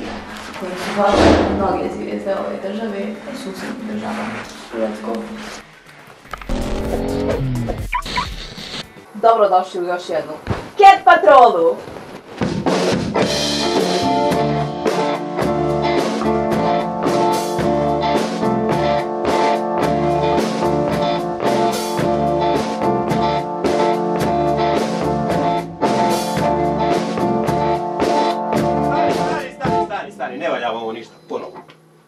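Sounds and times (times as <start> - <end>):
rock band playing instrumental: 12.8 - 29.8.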